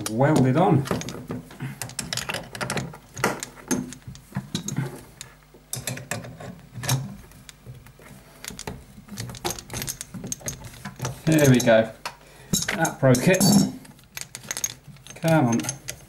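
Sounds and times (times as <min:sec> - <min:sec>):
spanner clicking on metal nut: 0:14.2 - 0:16.0.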